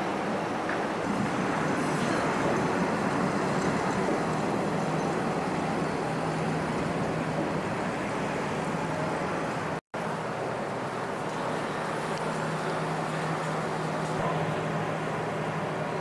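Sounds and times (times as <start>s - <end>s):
electric train running: 0.0s - 9.8s.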